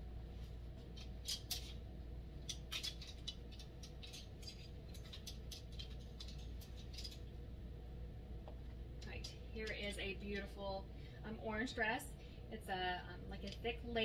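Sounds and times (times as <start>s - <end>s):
low steady hum: 0.0s - 14.0s
clothes hangers clicking and rustling: 0.9s - 1.8s, 2.4s - 7.3s.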